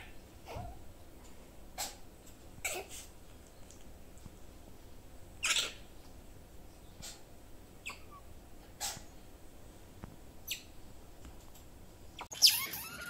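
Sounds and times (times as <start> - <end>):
otter squeaking: 12.2 - 13.0.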